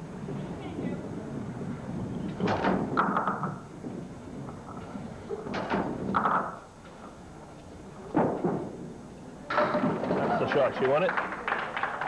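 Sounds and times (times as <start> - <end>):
murmur of the hall: 0.0 - 12.0
bowling pins knocking: 0.4 - 7.2, 8.0 - 11.4.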